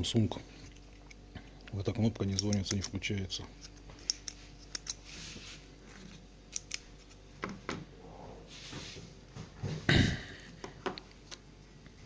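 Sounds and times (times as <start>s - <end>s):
rustling on workbench: 5.0s - 6.2s, 8.5s - 9.6s.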